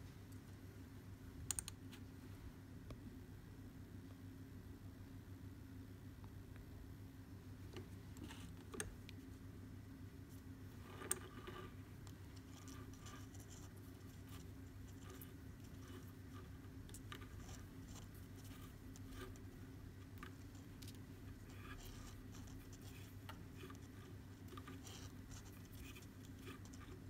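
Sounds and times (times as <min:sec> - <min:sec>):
steady low hum: 0:00.0 - 0:27.0
sharp click: 0:01.5 - 0:01.8.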